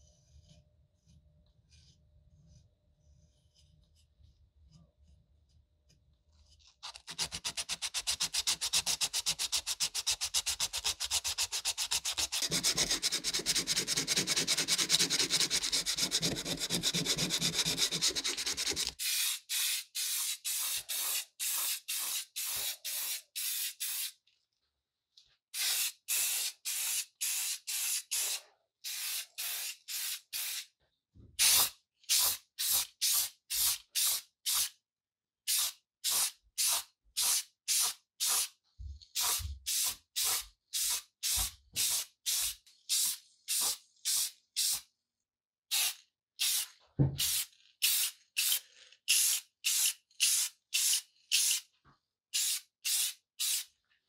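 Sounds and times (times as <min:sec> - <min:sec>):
sandpaper rasping on filler: 0:06.9 - 0:19.0
aerosol spray can hisses: 0:19.0 - 0:24.2, 0:25.6 - 0:30.7, 0:31.4 - 0:34.7, 0:35.5 - 0:38.5, 0:39.2 - 0:44.8, 0:45.7 - 0:51.6, 0:52.4 - 0:53.7.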